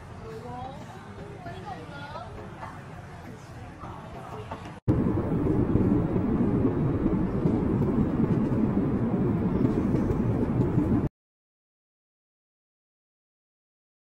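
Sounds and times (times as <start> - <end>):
airliner cabin rumble: 4.8 - 11.1.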